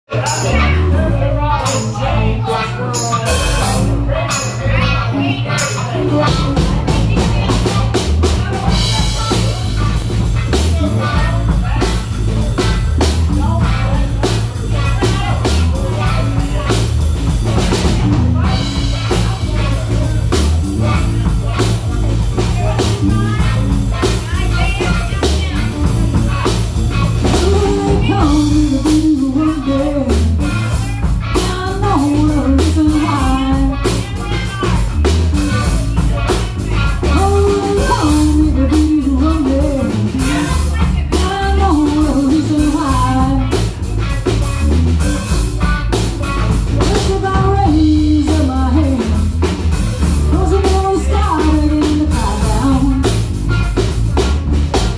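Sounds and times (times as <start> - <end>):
blues band playing: 0.1 - 54.9
woman singing into microphone: 27.3 - 30.5, 31.4 - 34.5, 37.0 - 43.5, 46.8 - 49.3, 50.2 - 53.2.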